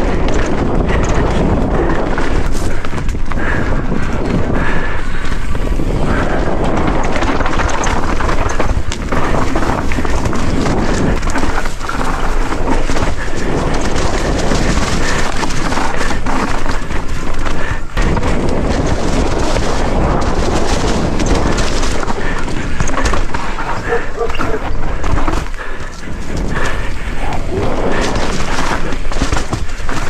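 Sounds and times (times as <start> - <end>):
wind buffeting microphone: 0.0 - 30.0
bike knocking over bumps: 5.8 - 30.0
tyres on dirt and leaves: 7.0 - 30.0.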